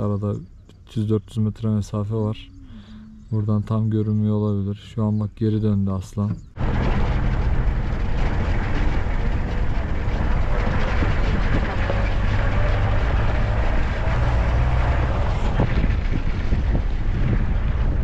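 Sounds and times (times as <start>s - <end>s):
vehicle engine and road rumble: 0.0s - 18.0s
wind on microphone: 6.3s - 18.0s.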